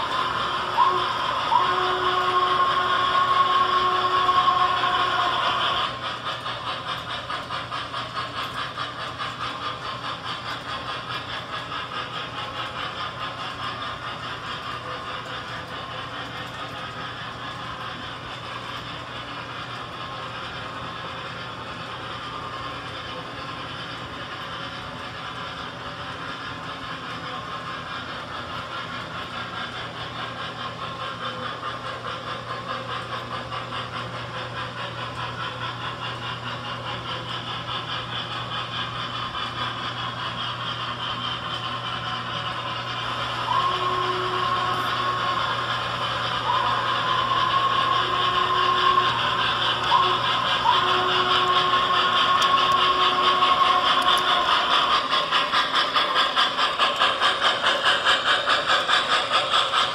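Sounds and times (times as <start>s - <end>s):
model train rolling on track: 0.0s - 59.9s.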